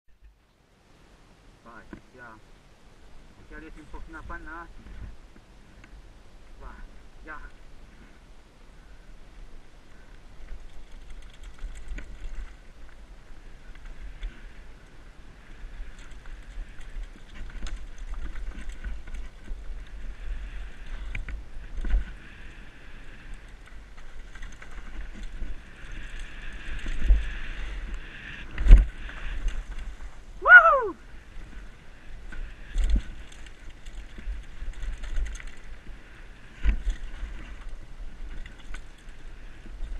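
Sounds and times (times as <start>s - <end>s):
wind rumble on microphone: 1.0s - 39.9s
bike tyres rattling over ground: 10.3s - 39.9s.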